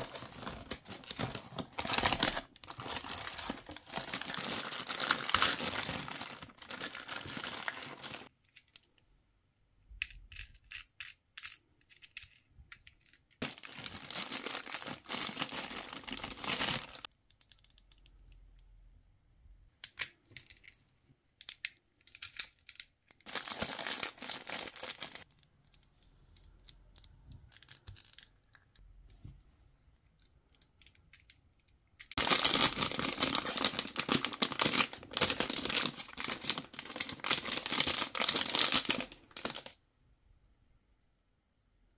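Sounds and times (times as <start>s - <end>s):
foil bag crinkling: 0.0s - 8.3s, 13.4s - 17.1s, 23.3s - 25.2s, 32.2s - 39.7s
plastic wrap rustling: 0.0s - 8.3s, 13.4s - 17.1s, 23.3s - 25.3s, 32.2s - 39.7s
hard plastic pieces clicking: 21.4s - 23.3s.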